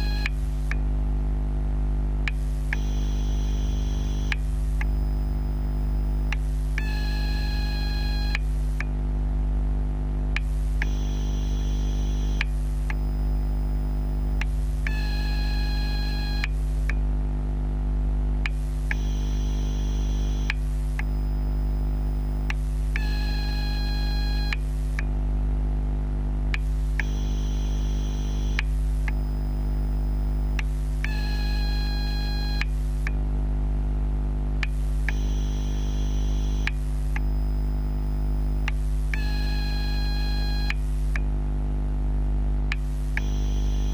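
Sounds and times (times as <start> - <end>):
high-pitched electrical whine: 0.0 - 0.7, 2.3 - 8.8, 10.4 - 16.6, 18.5 - 25.0, 26.6 - 32.8, 34.6 - 41.2, 42.8 - 43.9
battery charger hum: 0.0 - 0.9, 2.2 - 9.6, 10.2 - 17.1, 18.3 - 25.2, 26.5 - 33.3, 34.6 - 41.4, 42.5 - 43.9.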